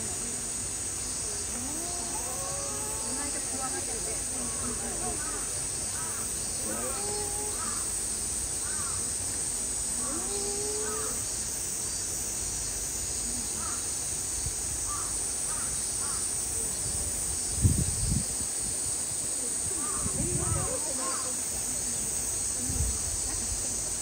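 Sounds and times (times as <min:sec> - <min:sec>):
steady high hiss: 0:00.0 - 0:24.0
crows cawing: 0:08.6 - 0:09.0.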